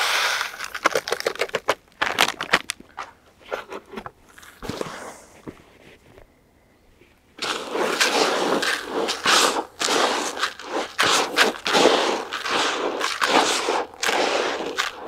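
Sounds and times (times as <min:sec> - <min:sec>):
hands mixing groundbait: 0:00.0 - 0:02.8, 0:07.4 - 0:15.0.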